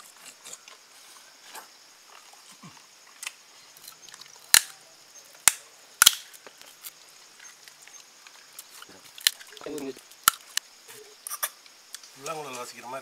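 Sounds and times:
bones cracking and snapping: 5.4s - 7.0s, 8.5s - 10.6s.

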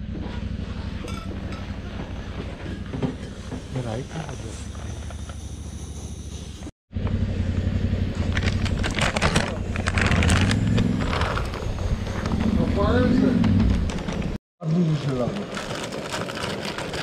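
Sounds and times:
plastic snack bag crinkling: 8.4s - 11.7s, 15.1s - 17.0s.

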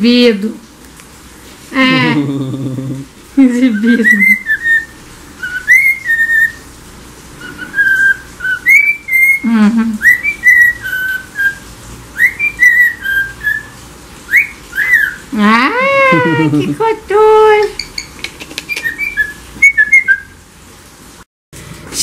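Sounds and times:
cockatiel whistling: 3.7s - 6.6s, 7.4s - 15.3s, 17.8s - 20.4s.

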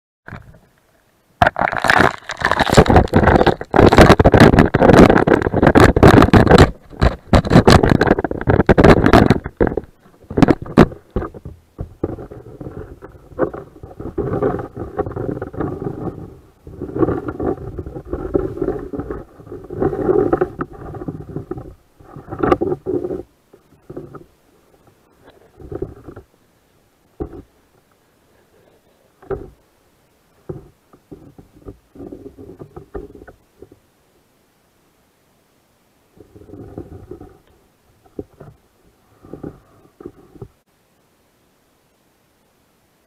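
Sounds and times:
muffled underwater surging water: 1.4s - 29.7s
slush and water sloshing: 1.6s - 6.4s.

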